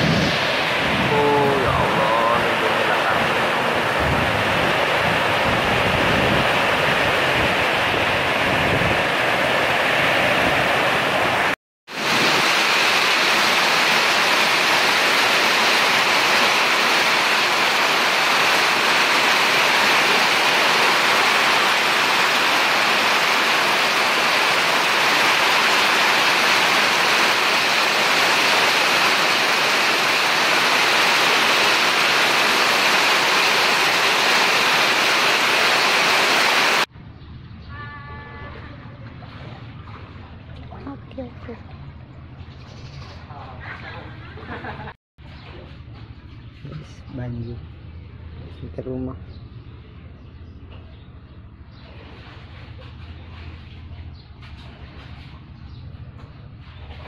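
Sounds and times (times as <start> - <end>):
heavy rush of water: 0.0 - 36.9.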